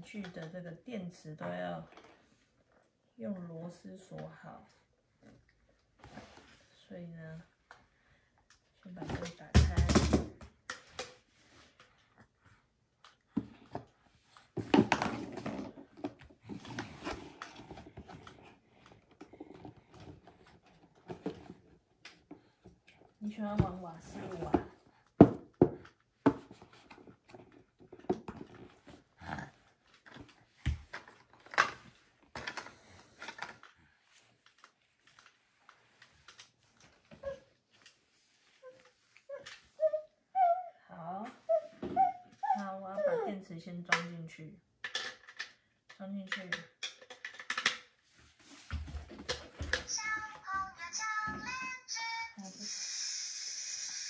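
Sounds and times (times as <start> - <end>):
plastic toy clicks and rattles: 44.8 - 47.9.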